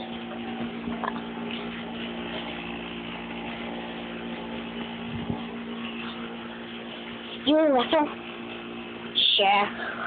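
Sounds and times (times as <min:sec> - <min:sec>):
machine hum: 0:00.0 - 0:10.0.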